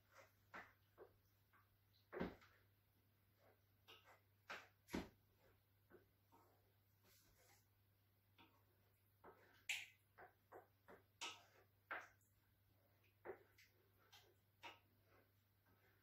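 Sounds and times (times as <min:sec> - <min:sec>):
spoon scraping a frying pan: 0:10.6 - 0:16.0.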